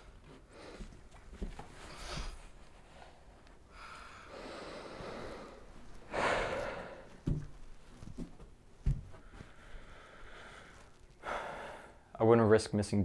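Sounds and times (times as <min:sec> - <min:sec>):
person breathing heavily: 0:01.8 - 0:07.3, 0:09.1 - 0:12.1.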